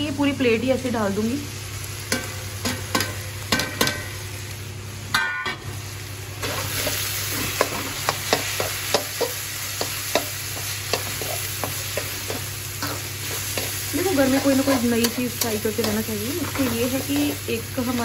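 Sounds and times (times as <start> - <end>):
vegetables sizzling in a wok: 0.0 - 18.0
spatula scraping a wok: 6.4 - 17.5
spatula tapping on pan: 7.6 - 12.5.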